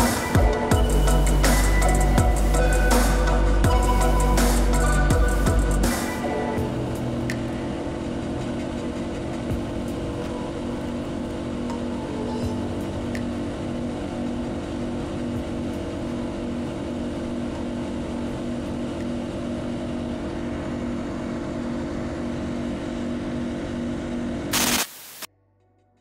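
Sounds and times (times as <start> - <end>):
motorboat engine running: 0.0 - 24.5
loud burst of noise: 24.5 - 25.3.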